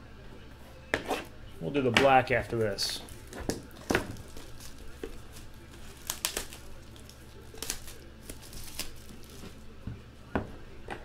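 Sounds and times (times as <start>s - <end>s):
packaging rustling and crinkling: 3.0s - 9.7s.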